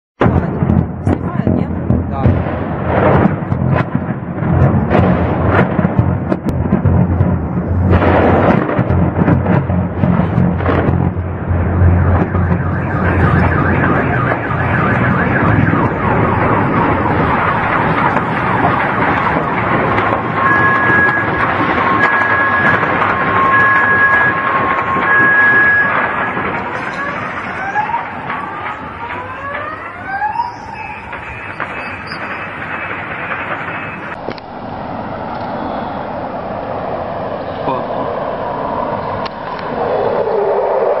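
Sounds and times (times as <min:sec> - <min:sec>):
car alarm two alternating pitches: 0:12.0 - 0:17.6, 0:20.3 - 0:26.4
low-flying aircraft roar: 0:33.6 - 0:41.0.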